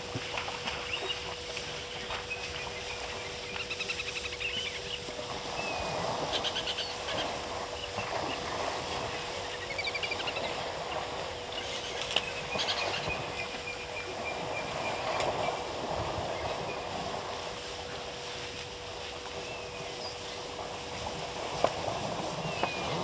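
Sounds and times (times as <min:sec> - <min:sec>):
birds chirping trills: 0:00.0 - 0:21.0, 0:22.0 - 0:23.0
elephants moving through dry grass: 0:00.0 - 0:23.0
faint steady hum: 0:00.0 - 0:23.0.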